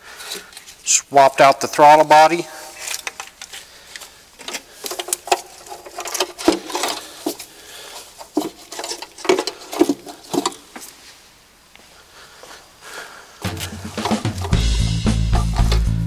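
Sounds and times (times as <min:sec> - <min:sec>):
plastic and metal parts knocking: 0:04.4 - 0:07.5, 0:08.2 - 0:10.7, 0:13.4 - 0:14.6, 0:15.3 - 0:16.0.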